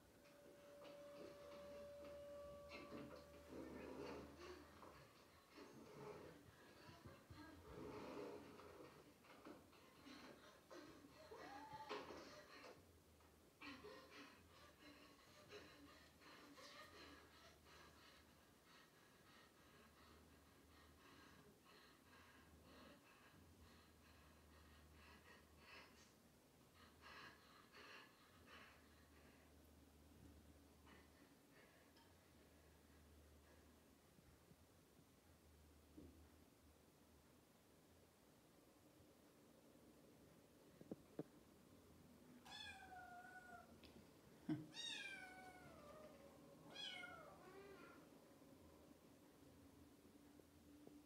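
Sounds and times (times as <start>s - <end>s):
faint room hum: 0.0s - 51.0s
cat meowing: 42.4s - 43.7s, 44.7s - 46.1s, 46.7s - 48.0s.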